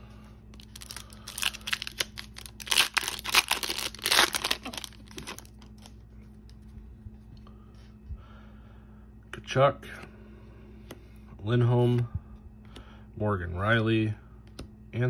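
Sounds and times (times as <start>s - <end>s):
foil wrapper tearing and crinkling: 0.6s - 5.9s.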